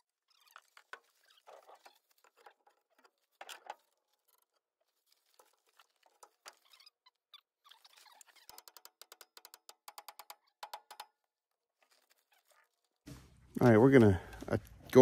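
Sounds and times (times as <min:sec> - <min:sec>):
rustling: 0:00.0 - 0:08.5, 0:11.6 - 0:15.0.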